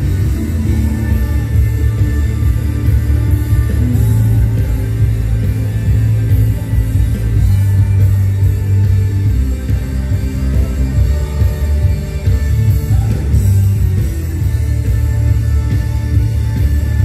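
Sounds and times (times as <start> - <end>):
electric guitar playing: 0.0 - 17.0
heavy steady bass: 0.0 - 17.0.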